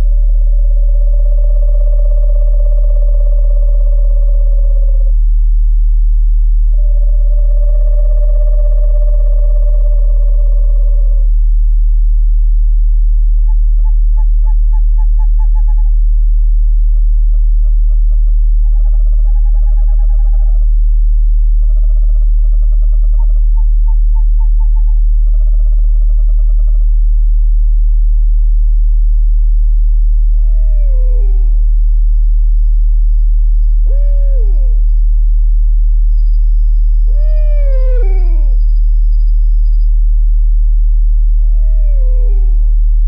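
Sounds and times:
owl trilled hoots: 0.0s - 5.2s, 6.7s - 11.3s, 13.3s - 16.1s, 16.8s - 20.8s, 21.5s - 27.0s, 28.8s - 43.0s
steady low meditation tone: 0.0s - 43.0s.

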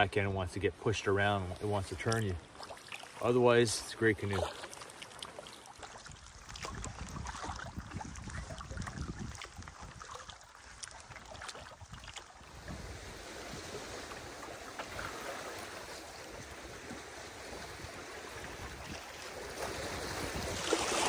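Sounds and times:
water lapping against canoe hull: 0.0s - 21.0s
small water splashes: 1.2s - 21.0s
wind gusting on microphone: 6.1s - 10.2s, 11.8s - 15.3s, 16.2s - 21.0s.

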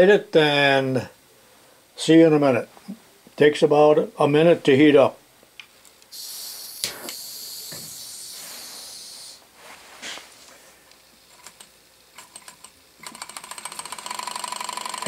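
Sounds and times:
torch lighter hissing: 6.1s - 10.3s.

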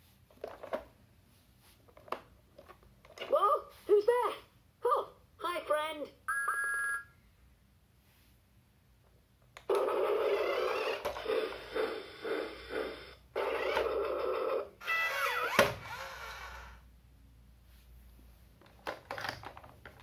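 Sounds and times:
toy train sound effects: 9.7s - 16.8s.

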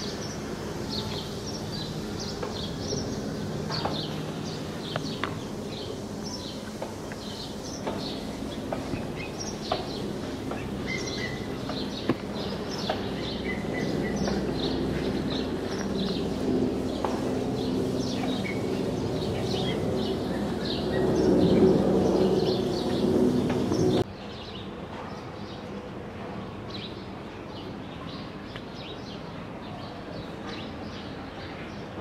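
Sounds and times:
steady low hum: 0.0s - 24.1s
small birds chirping: 0.0s - 25.6s.

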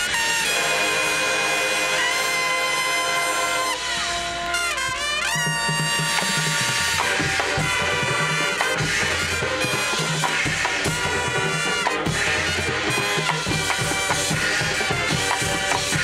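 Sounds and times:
marching band brass chords: 0.0s - 16.0s.

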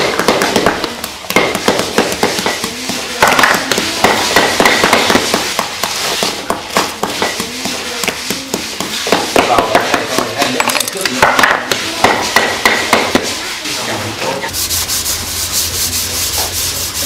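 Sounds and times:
hand tools tapping bamboo: 0.0s - 13.3s.

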